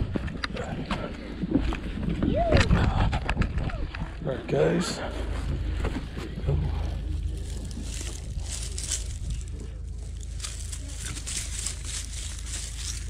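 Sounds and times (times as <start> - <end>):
steady low rumble: 0.0 - 13.0
footsteps through dry grass: 5.2 - 13.0.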